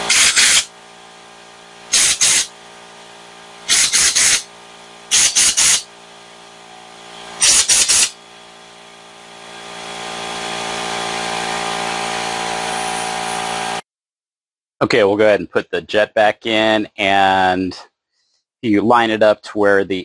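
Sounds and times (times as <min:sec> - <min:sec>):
compressed air blasts: 0:00.0 - 0:00.7, 0:01.9 - 0:02.5, 0:03.6 - 0:04.5, 0:05.1 - 0:05.9, 0:07.4 - 0:08.2
steady mechanical running: 0:00.0 - 0:13.8.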